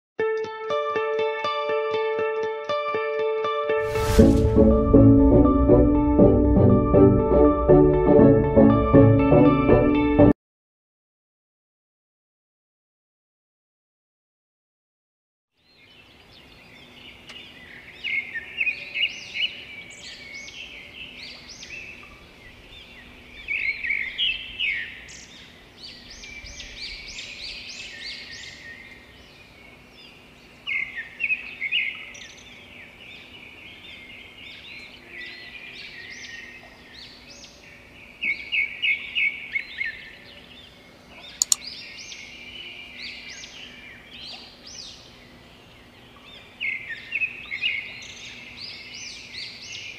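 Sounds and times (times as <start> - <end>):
small birds chirping: 15.6 - 49.9
sharp click: 41.4 - 41.6.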